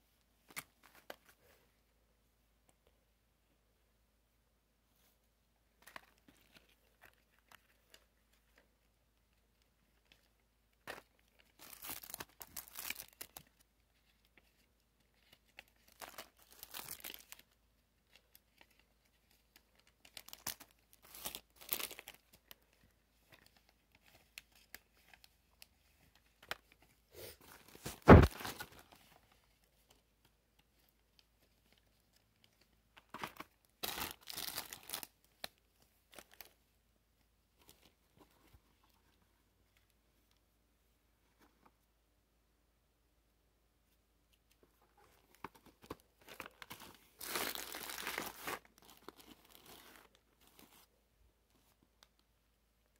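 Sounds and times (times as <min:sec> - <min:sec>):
candy wrappers crinkling: 0:09.8 - 0:26.8, 0:31.5 - 0:36.6, 0:45.3 - 0:50.8
loud thump: 0:28.0 - 0:28.4.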